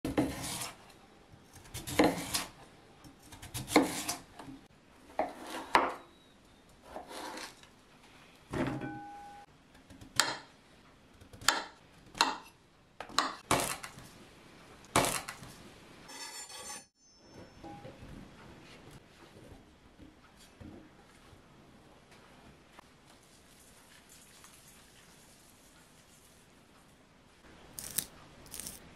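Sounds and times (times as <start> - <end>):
knife slicing vegetables: 0.1 - 4.4, 27.8 - 28.8.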